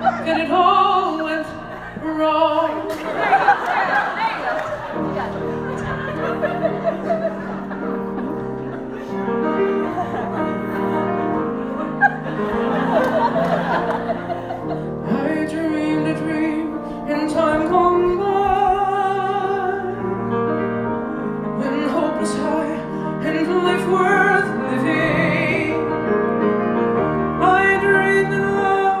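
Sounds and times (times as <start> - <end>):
man singing into microphone: 0.0 - 3.0, 15.0 - 20.4, 21.6 - 26.1, 27.4 - 29.0
piano accompaniment: 0.0 - 29.0.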